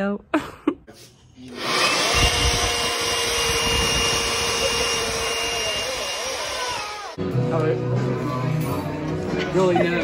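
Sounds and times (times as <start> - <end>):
leaf blower whining: 1.5 - 7.2.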